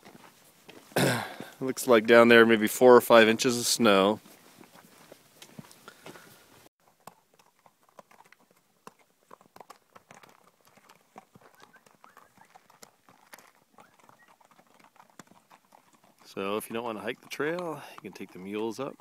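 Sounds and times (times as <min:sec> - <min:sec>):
hooves on rocky trail: 0:00.0 - 0:19.0.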